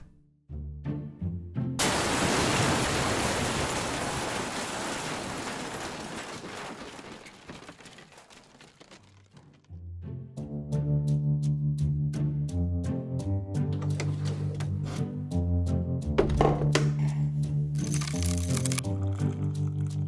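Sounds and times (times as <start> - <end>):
hissing rush of falling rubble: 1.8 - 9.0
loud crash of floor caving in: 1.8 - 9.3.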